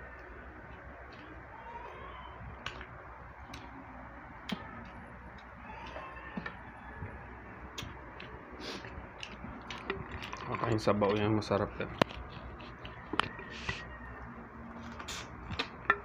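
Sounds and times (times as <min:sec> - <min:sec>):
fingers and food clicking on plates: 0:04.4 - 0:16.0.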